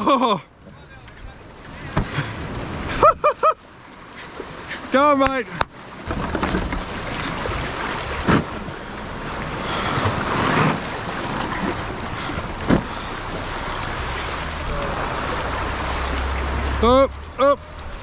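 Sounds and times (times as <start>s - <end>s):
sea water washing: 1.5s - 18.0s
low steady rumble: 6.0s - 18.0s.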